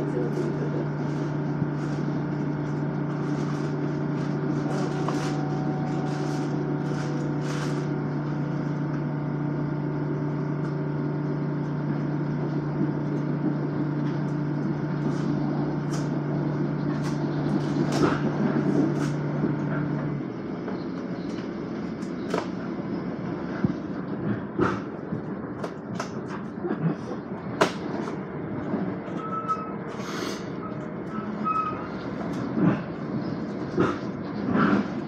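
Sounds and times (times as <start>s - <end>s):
train electric hum: 0.0s - 35.0s
wheels rumbling on rails: 0.0s - 35.0s
clicks and squeaks: 29.1s - 30.0s, 30.6s - 32.5s.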